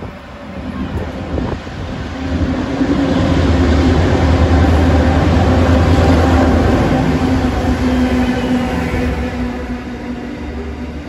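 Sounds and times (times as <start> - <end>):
diesel locomotive engine drone: 0.0 - 11.0.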